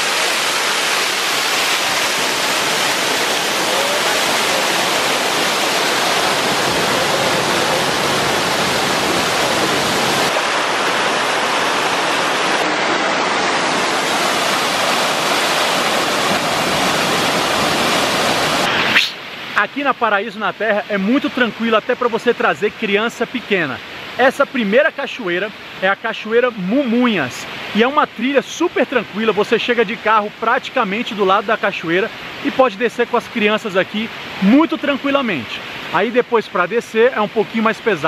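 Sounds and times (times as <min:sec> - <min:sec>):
waterfall pouring into pool: 0:00.0 - 0:18.7.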